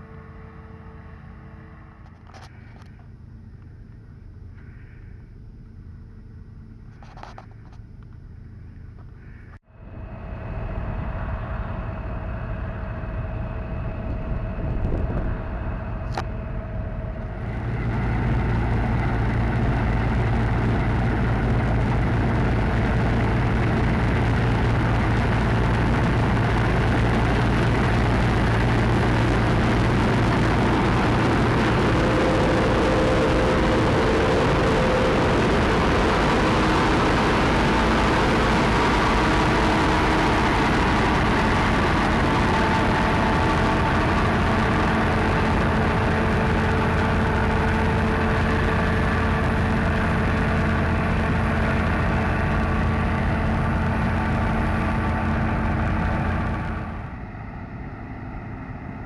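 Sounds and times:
combine harvester running: 0.0 - 59.0.

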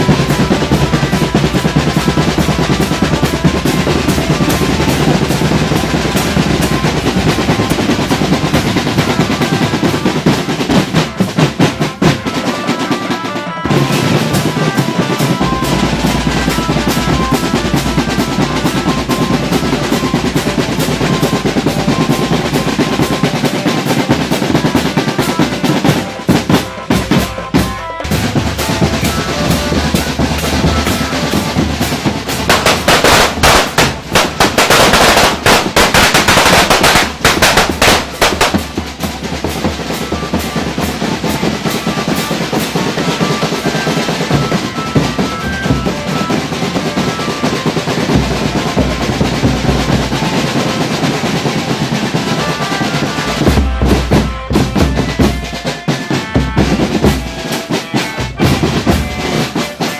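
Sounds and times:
snare drum rolls: 0.0 - 59.9
bass drums: 15.2 - 41.9, 58.1 - 59.6
cymbal crashes: 28.2 - 39.2.

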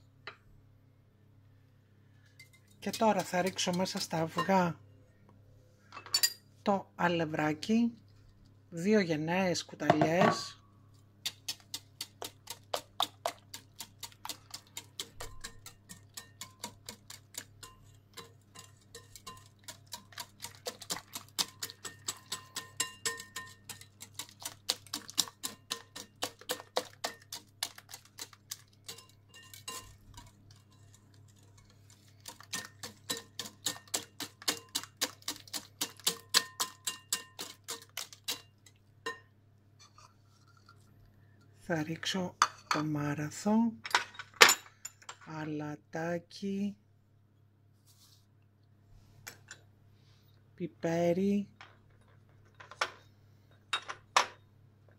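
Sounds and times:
wire whisk clicking in glass bowl: 17.6 - 29.8, 32.3 - 38.5.

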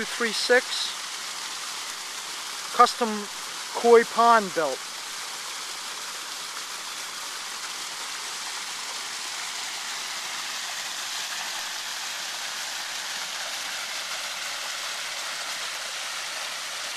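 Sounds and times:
waterfall splashing into pond: 0.0 - 16.9.

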